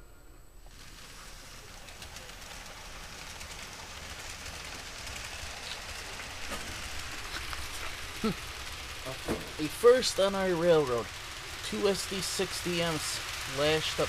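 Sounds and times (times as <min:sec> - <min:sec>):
low motor hum: 0:00.0 - 0:14.0
model train wheels rattling on track: 0:00.6 - 0:14.0.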